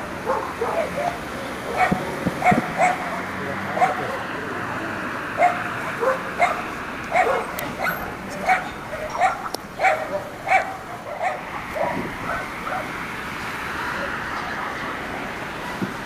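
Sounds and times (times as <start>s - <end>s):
dog barking: 0.2s - 4.3s, 5.4s - 12.9s.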